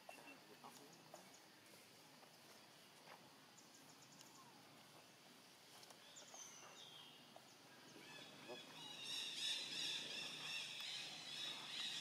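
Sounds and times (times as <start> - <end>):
faint outdoor ambience: 0.0 - 12.0.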